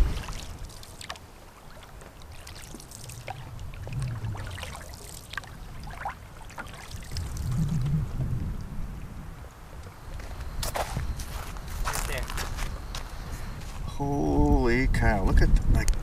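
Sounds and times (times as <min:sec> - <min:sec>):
paddle strokes splashing: 0:00.0 - 0:08.2
water trickling off paddle: 0:00.0 - 0:09.0
low rumble: 0:03.2 - 0:04.9, 0:07.1 - 0:09.6.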